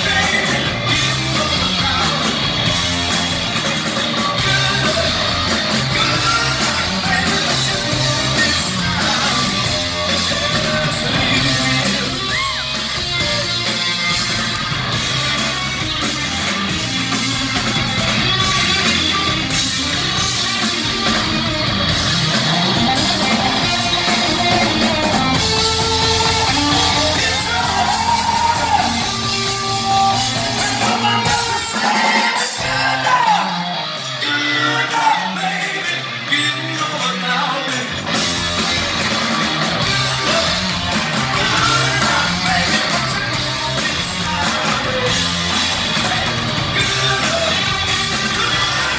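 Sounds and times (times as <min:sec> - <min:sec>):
rock band playing: 0:00.0 - 0:48.9
singer wailing: 0:04.1 - 0:13.6, 0:22.4 - 0:37.7.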